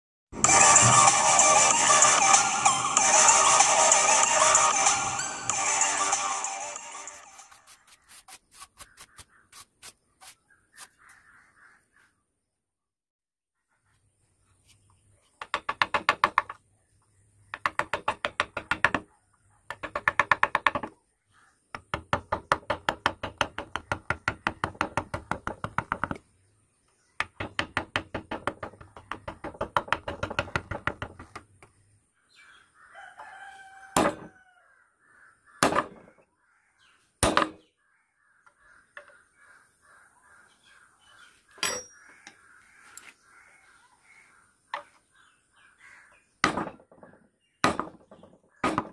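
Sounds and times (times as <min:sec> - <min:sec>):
wooden mallet tapping a gouge: 0:15.4 - 0:16.6, 0:17.5 - 0:19.1, 0:19.7 - 0:21.0, 0:21.7 - 0:26.2, 0:27.2 - 0:31.4.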